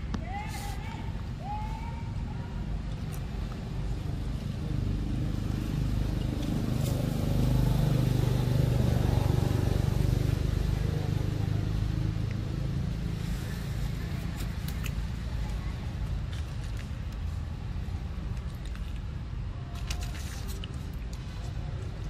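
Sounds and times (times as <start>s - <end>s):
vehicle engine humming: 3.2s - 19.4s.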